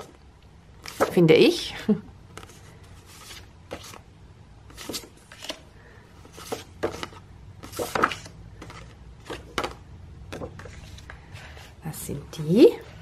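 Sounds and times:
paper rustling and flapping: 0:00.8 - 0:01.2, 0:02.3 - 0:04.0, 0:04.7 - 0:11.6.

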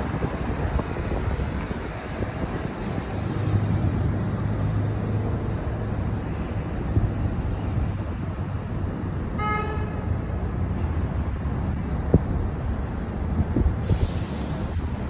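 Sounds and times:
car horn honk: 0:09.4 - 0:10.0.

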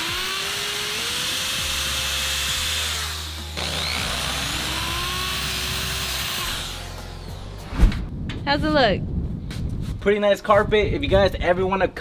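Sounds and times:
cordless drill motor whine: 0:00.0 - 0:07.0.

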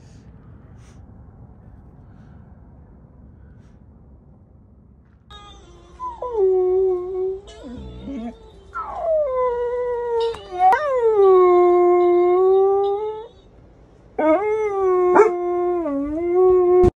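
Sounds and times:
dog howling: 0:06.0 - 0:13.5, 0:14.2 - 0:17.0.

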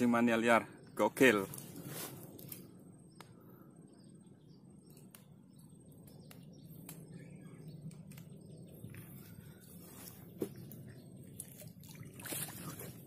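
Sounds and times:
outdoor background noise: 0:00.0 - 0:13.0
faint bird chirps: 0:02.5 - 0:12.8.

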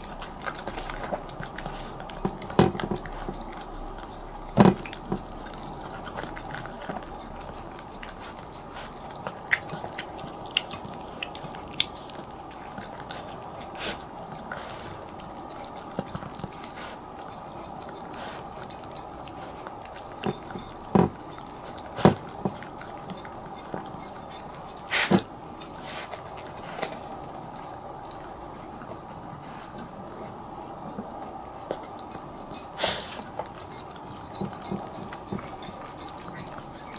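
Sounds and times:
dog chewing and lapping: 0:00.0 - 0:36.9.

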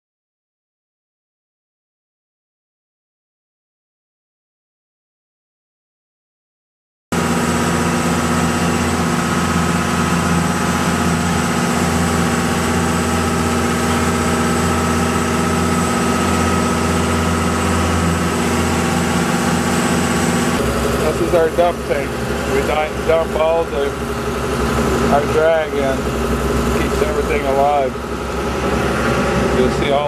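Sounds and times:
boat engine droning: 0:07.1 - 0:30.0
thin steady whine: 0:07.2 - 0:30.0.

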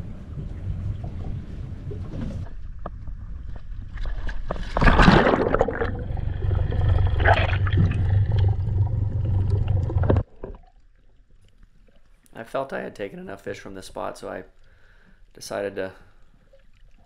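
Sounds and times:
water splashing and gurgling: 0:01.0 - 0:12.2
low rumble: 0:05.2 - 0:10.3.

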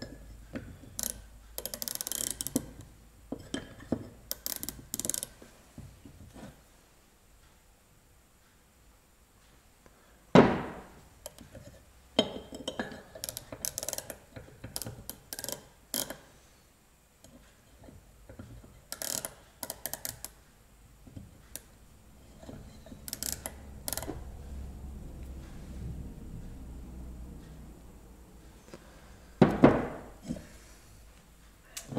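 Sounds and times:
small metallic clicks and clatter: 0:00.9 - 0:02.9, 0:03.5 - 0:05.4, 0:12.6 - 0:16.2
loud knock on workbench: 0:10.4 - 0:10.9, 0:29.4 - 0:30.0.

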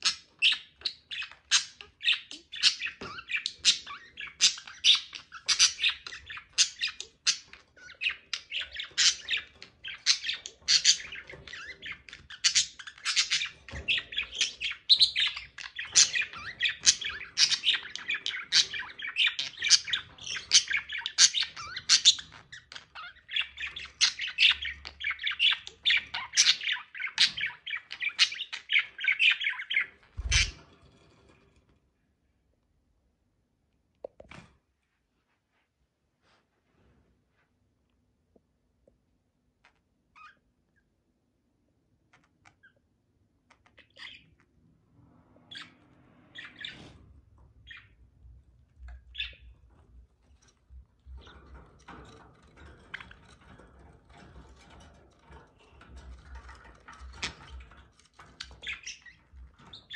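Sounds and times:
budgerigars chattering: 0:00.0 - 0:30.6, 0:49.0 - 0:49.4.

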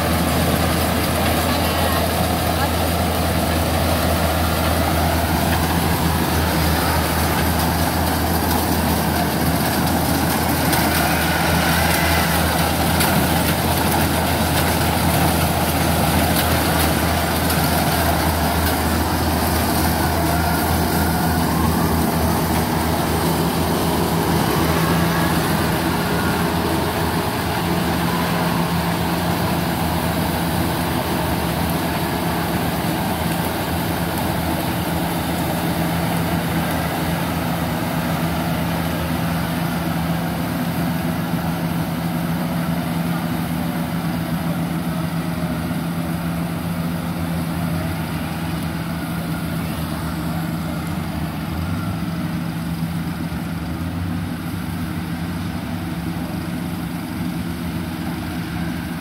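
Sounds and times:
combine harvester engine running: 0:00.0 - 0:59.0.

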